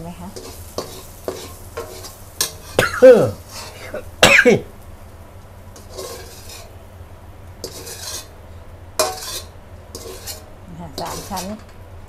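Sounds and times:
metal spatula scraping wok: 0.3 - 4.2, 5.7 - 6.8, 7.6 - 11.8.

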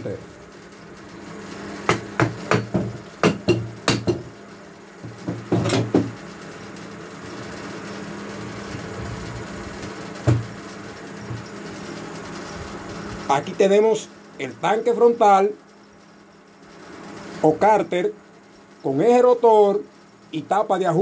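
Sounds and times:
wooden block knocking on metal shaft: 1.8 - 4.3, 5.0 - 6.2.

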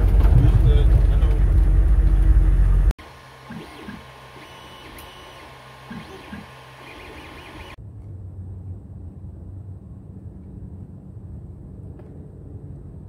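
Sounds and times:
cooling fan hum: 0.0 - 7.8
low outdoor rumble: 0.0 - 13.0
stepper motors whining: 3.0 - 7.8.

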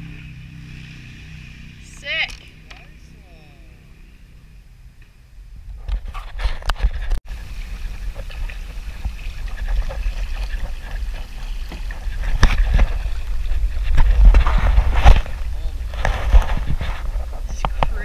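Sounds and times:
water gurgling along hull: 6.7 - 18.0
paddle strokes splashing: 6.8 - 16.9.

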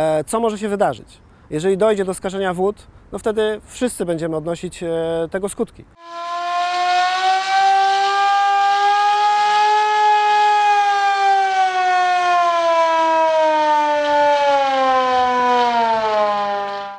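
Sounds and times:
siren tone: 6.0 - 16.9.

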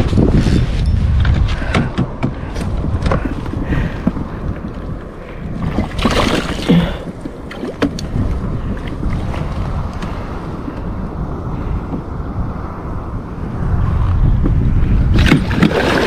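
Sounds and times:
wind buffeting microphone: 0.0 - 16.0
water lapping against hull: 3.1 - 12.1, 15.1 - 16.0.

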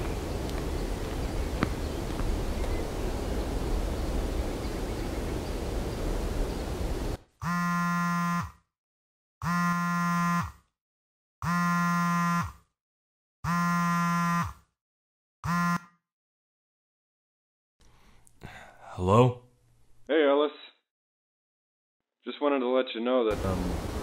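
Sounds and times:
phone call buzzing tone: 7.4 - 8.6, 9.4 - 10.6, 11.4 - 12.6, 13.5 - 14.6, 15.5 - 15.9
background hiss: 23.3 - 24.0.

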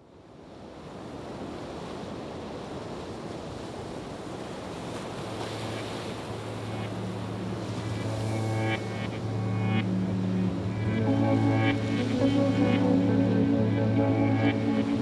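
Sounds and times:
steady rushing noise: 5.6 - 15.0
low steady hum: 6.1 - 15.0
background music: 6.4 - 15.0.

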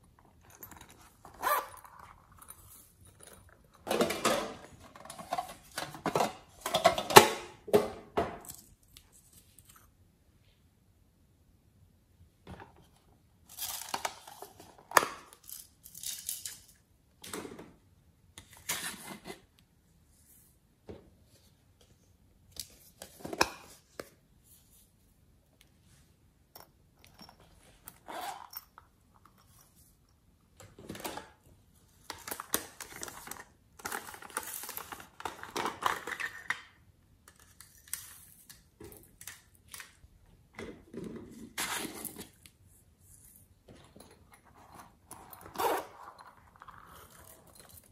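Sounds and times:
plastic containers rustling and clicking: 3.1 - 8.5, 32.1 - 37.4.

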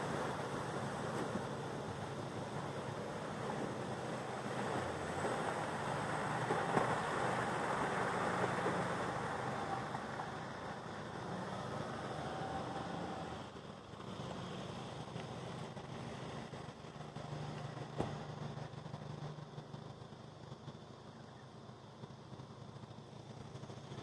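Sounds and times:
shallow river running over stones: 0.0 - 24.0
vehicle engine driving away: 0.0 - 24.0.

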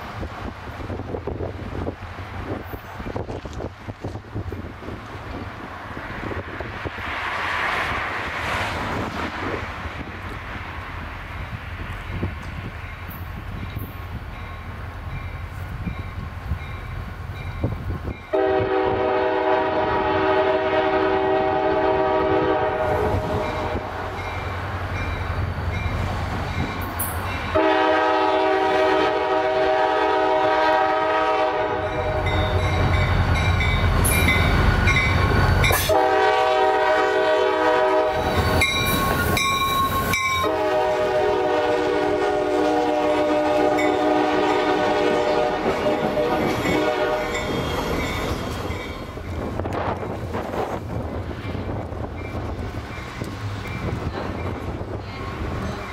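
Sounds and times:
locomotive air horn blasts: 18.3 - 24.1, 27.5 - 32.8, 35.7 - 38.4, 40.4 - 47.6.

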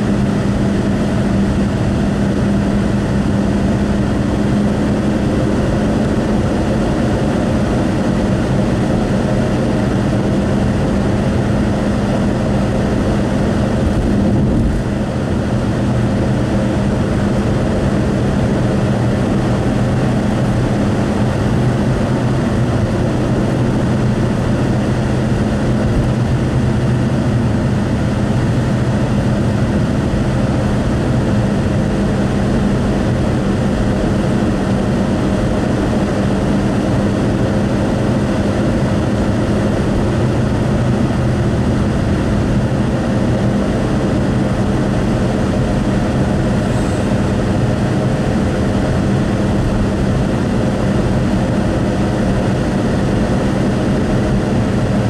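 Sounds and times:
low engine hum: 0.0 - 55.0
tyre road noise: 0.0 - 55.0.

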